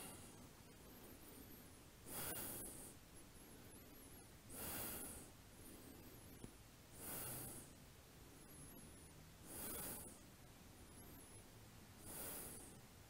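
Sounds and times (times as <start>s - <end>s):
person breathing softly: 0.0s - 13.0s.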